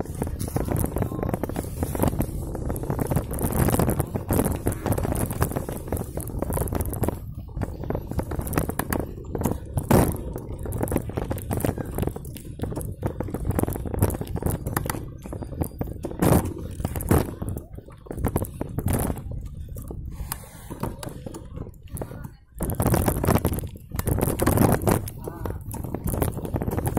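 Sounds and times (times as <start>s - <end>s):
bike knocking and rattling: 0.0s - 26.9s
wind rumble on microphone: 0.0s - 26.9s.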